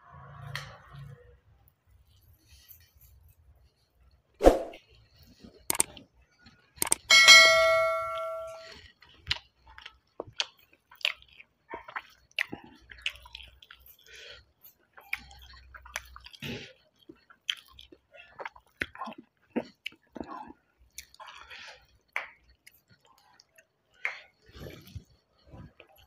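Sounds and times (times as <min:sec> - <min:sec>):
person chewing and smacking: 0:05.0 - 0:07.1, 0:08.6 - 0:26.0
bell chime: 0:07.1 - 0:08.6.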